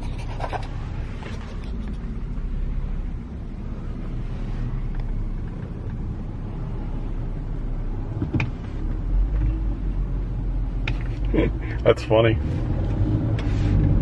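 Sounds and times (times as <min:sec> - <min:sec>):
car engine and road rumble: 0:00.0 - 0:14.0.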